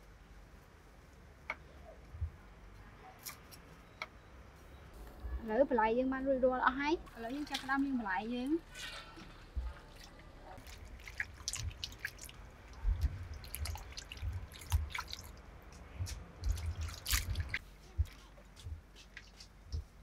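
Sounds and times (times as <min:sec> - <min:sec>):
water splashing in a bowl: 0:07.1 - 0:08.6, 0:09.6 - 0:17.6.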